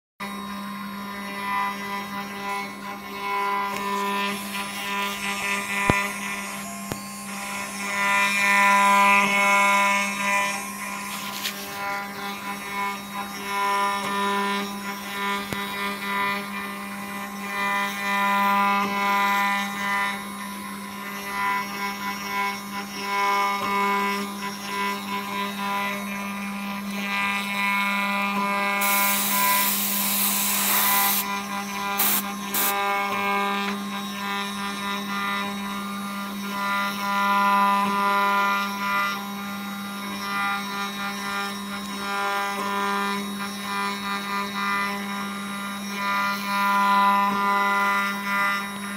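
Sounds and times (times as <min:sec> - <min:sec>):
router spindle whining: 0:00.2 - 0:48.9
bit carving wood: 0:01.1 - 0:35.6
burst of hissing: 0:28.8 - 0:31.2, 0:32.0 - 0:32.8.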